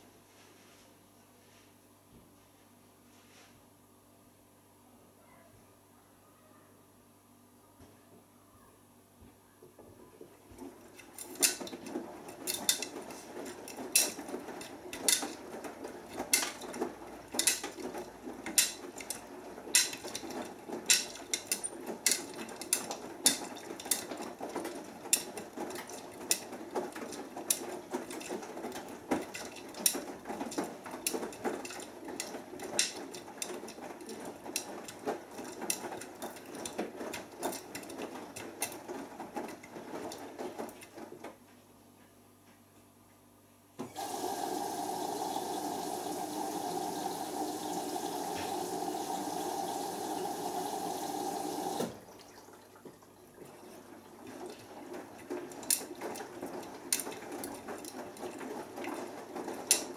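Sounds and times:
washing machine drum tumbling: 10.6s - 41.4s, 43.8s - 59.9s.

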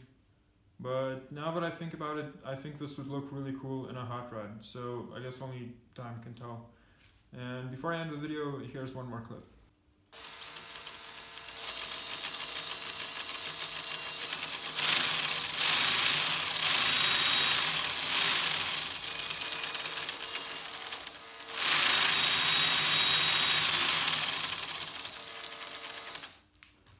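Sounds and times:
wooden model engine rattling: 10.2s - 26.4s.

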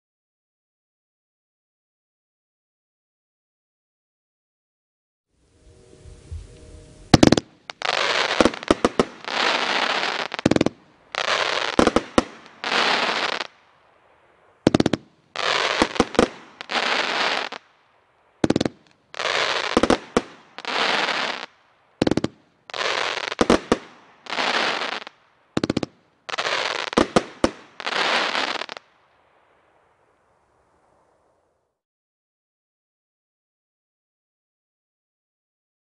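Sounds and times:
firework shots and crackling: 7.1s - 17.8s, 18.4s - 29.0s.

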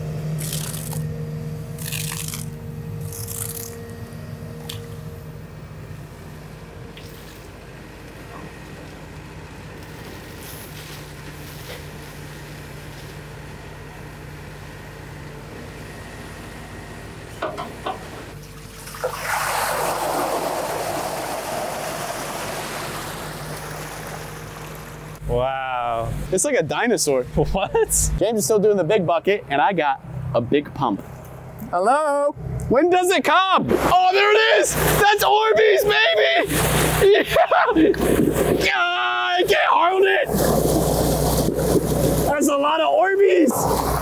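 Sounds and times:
diesel engine humming: 0.0s - 18.8s, 20.0s - 44.0s
water sloshing and pouring: 18.4s - 25.2s, 36.5s - 37.2s, 40.3s - 42.4s.

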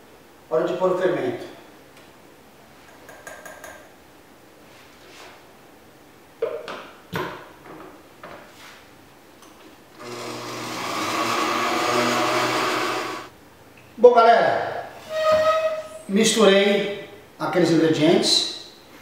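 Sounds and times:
blender motor running: 10.0s - 13.3s.

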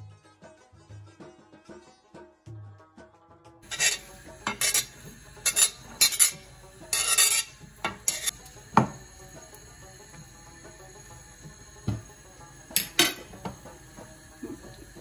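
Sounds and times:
knife scraping a glass cutting board: 3.6s - 8.4s.

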